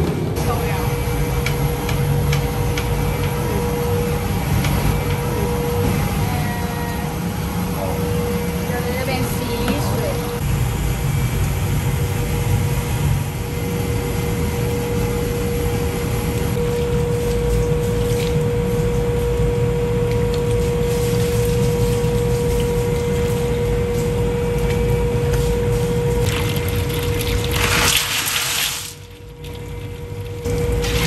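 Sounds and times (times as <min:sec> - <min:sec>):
kitchen equipment hum: 0:00.0 - 0:31.0
water gushing from hose onto ice: 0:26.2 - 0:29.2.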